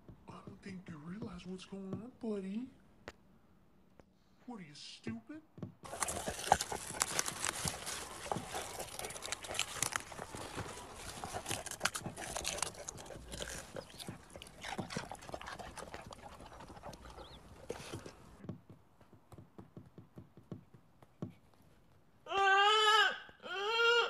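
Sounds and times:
dog digging in soil: 5.8s - 18.4s.

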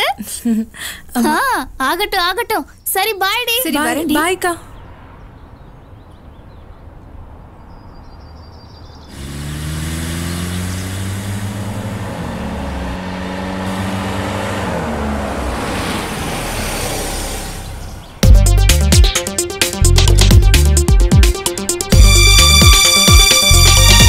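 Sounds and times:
car engine running: 9.1s - 19.2s, 21.9s - 24.0s.

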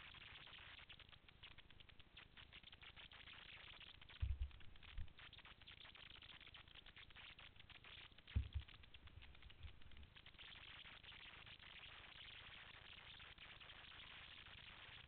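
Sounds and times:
microphone handling thumps: 4.2s - 5.1s, 8.4s - 9.9s.

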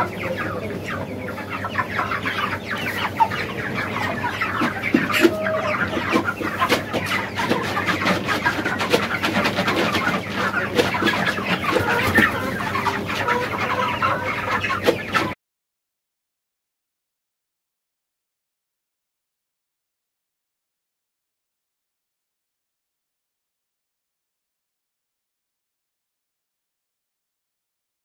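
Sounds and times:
chickens clucking: 0.0s - 15.4s.

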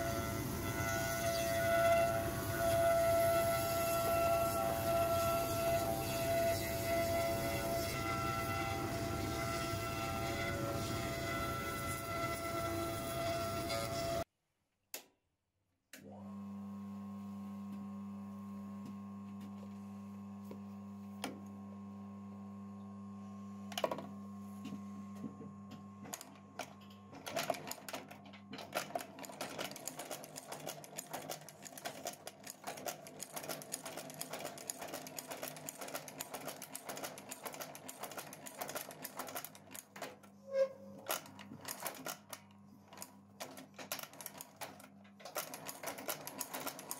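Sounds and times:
electric motor humming: 0.0s - 14.2s.

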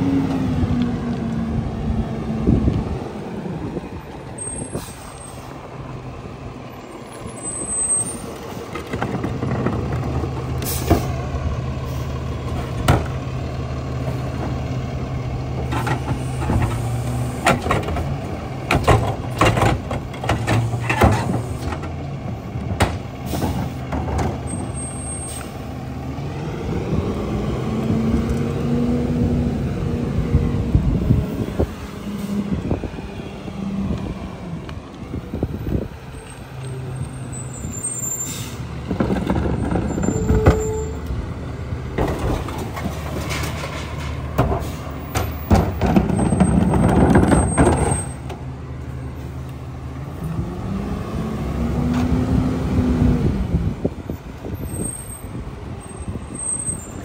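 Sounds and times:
diesel truck engine running: 0.0s - 57.0s
brake squeal: 4.3s - 5.6s, 6.7s - 9.8s, 20.2s - 21.9s, 23.2s - 25.8s, 36.1s - 41.2s, 42.2s - 49.4s, 54.4s - 57.0s
air brake hiss: 4.6s - 5.6s, 38.1s - 38.7s.

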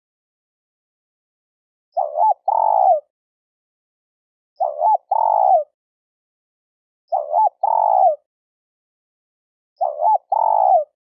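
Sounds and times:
dove cooing: 2.0s - 3.1s, 4.6s - 5.7s, 7.1s - 8.2s, 9.8s - 11.0s.

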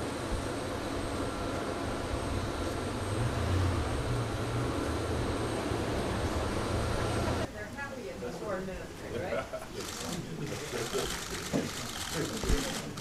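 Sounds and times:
faint high whine: 0.0s - 8.4s
jet engines rumbling: 0.0s - 13.0s.

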